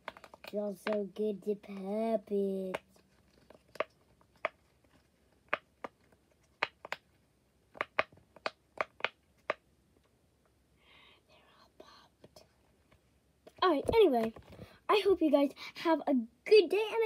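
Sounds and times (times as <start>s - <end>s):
fidget toy bubbles popping: 7.7s - 9.6s.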